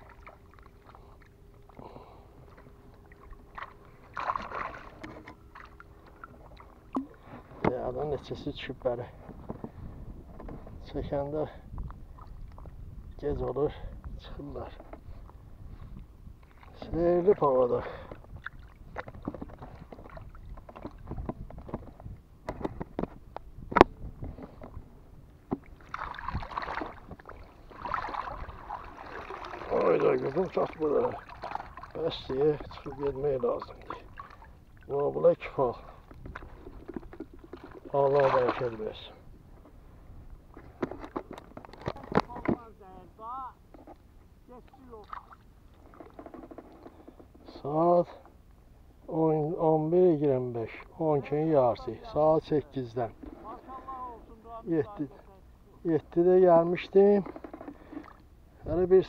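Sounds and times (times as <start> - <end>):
small waves lapping: 0.0 - 7.7, 15.1 - 21.3, 24.3 - 43.4, 44.5 - 47.3, 56.8 - 58.6
water sloshing and splashing: 0.0 - 10.8, 11.7 - 39.8, 40.4 - 43.0, 43.6 - 48.4, 56.7 - 58.7
faint steady hum: 0.0 - 59.0.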